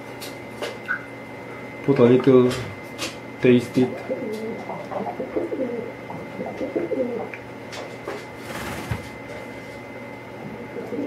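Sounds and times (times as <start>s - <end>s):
pigeon cooing: 3.8s - 7.4s, 10.4s - 11.0s.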